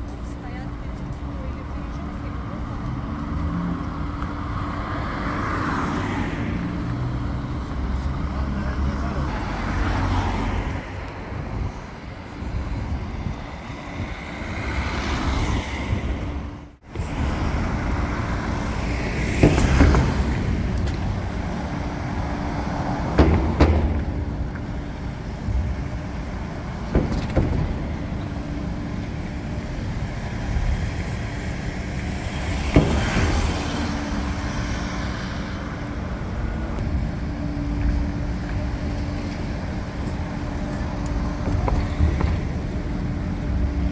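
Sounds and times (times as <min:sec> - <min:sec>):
car engines and tyres: 0:00.0 - 0:43.9
wheels clunking on steel plates: 0:17.0 - 0:43.9.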